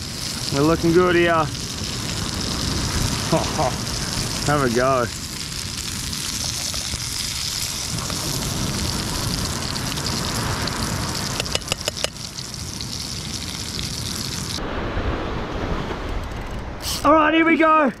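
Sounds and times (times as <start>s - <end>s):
fish sizzling in hot oil: 0.0s - 14.6s
knife clicking against pan: 11.4s - 12.1s
dull rushing noise: 14.2s - 18.0s.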